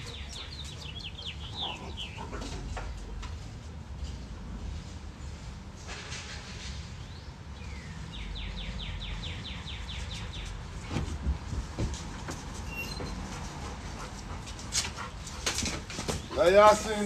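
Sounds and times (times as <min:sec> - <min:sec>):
small bird singing: 0:00.0 - 0:02.3, 0:07.1 - 0:10.6.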